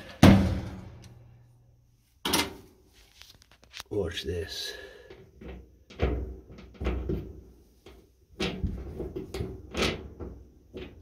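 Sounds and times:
roller clunking and knocking: 0:08.4 - 0:11.0.

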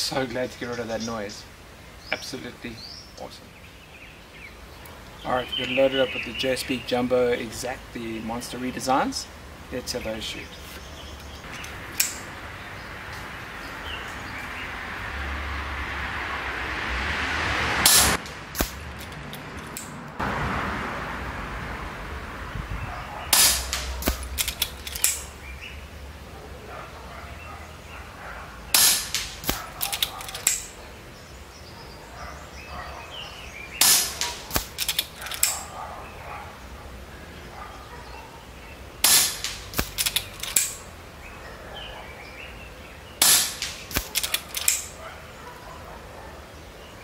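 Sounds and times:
air rifle shot crack: 0:17.8 - 0:19.0, 0:23.3 - 0:25.3, 0:28.8 - 0:30.7, 0:33.8 - 0:35.7, 0:39.0 - 0:40.8, 0:43.2 - 0:45.0
rifle clicks: 0:23.4 - 0:25.3, 0:28.8 - 0:30.7, 0:33.8 - 0:35.7, 0:39.0 - 0:40.8, 0:43.2 - 0:45.0.

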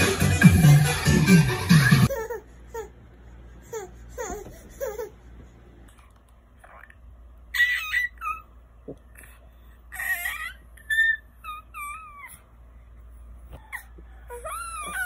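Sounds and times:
baby squealing and babbling: 0:07.5 - 0:08.5, 0:09.9 - 0:12.4, 0:14.3 - 0:15.0.

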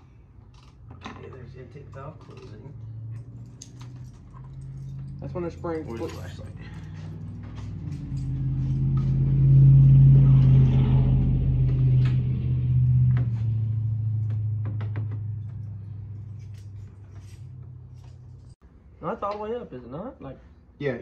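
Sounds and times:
low engine-like rumble: 0:00.0 - 0:18.6.

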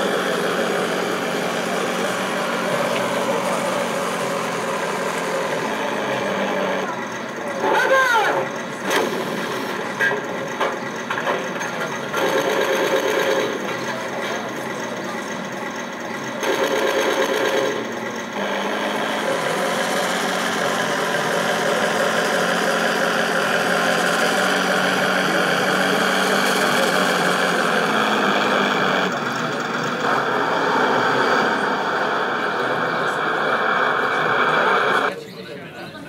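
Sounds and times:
model tank motor whine: 0:00.0 - 0:35.1
tank tracks rattling: 0:00.1 - 0:27.4.

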